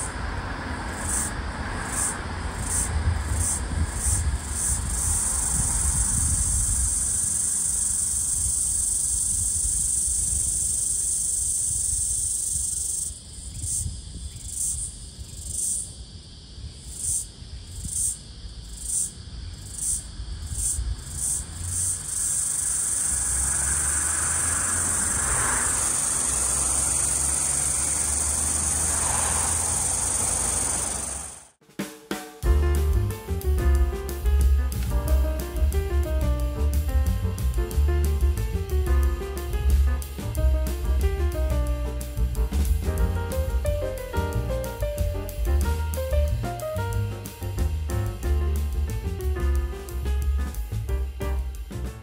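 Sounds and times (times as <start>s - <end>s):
cicada buzzing: 0.9s - 31.6s.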